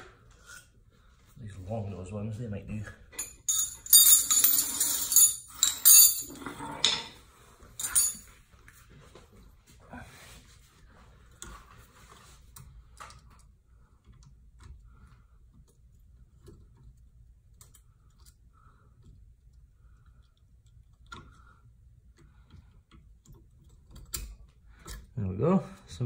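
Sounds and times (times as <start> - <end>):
metal hand tools clinking: 3.2 - 7.2, 7.8 - 8.3.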